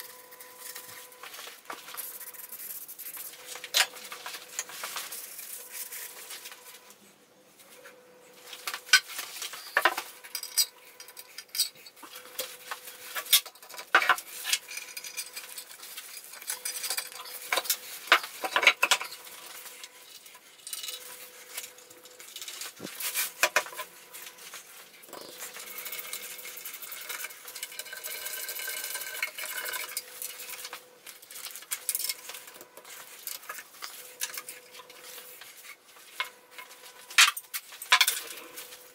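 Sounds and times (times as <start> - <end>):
metal parts clinking and knocking: 8.9 - 12.0.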